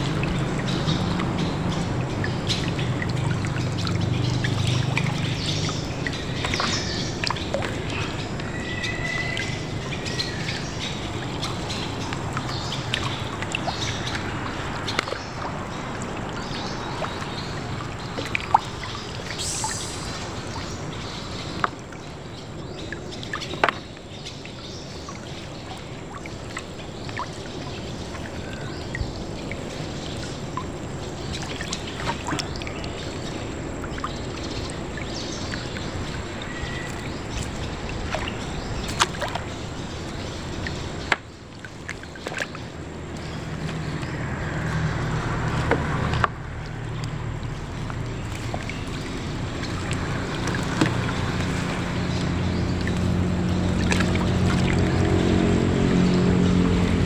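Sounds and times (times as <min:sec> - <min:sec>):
water trickling and dripping: 0:00.0 - 0:57.0
bird calling: 0:05.7 - 0:11.6, 0:35.2 - 0:39.8.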